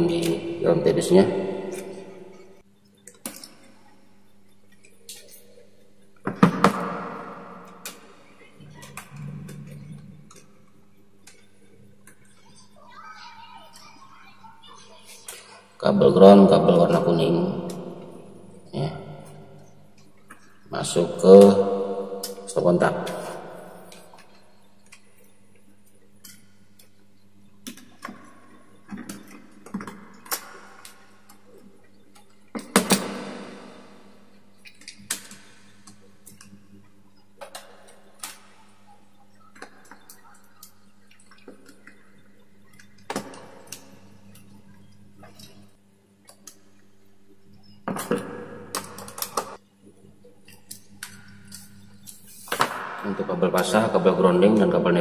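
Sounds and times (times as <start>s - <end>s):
faint steady hum: 0.0s - 55.0s
wires clicking and rustling: 34.5s - 46.8s, 47.5s - 49.6s.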